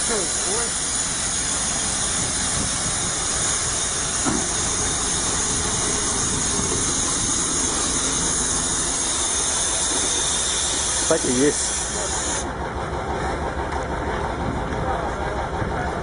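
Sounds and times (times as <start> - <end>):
steady hissing rush: 0.0 - 12.6
truck engine running: 0.0 - 16.0.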